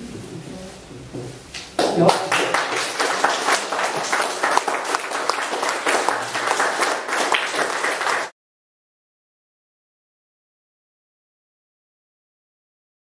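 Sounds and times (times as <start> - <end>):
audience applauding: 1.8 - 8.3.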